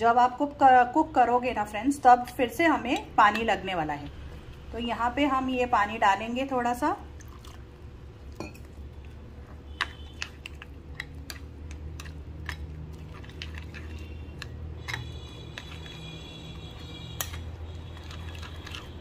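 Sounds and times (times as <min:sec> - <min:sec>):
spoon stirring wet batter: 0:01.7 - 0:04.1, 0:07.2 - 0:19.0.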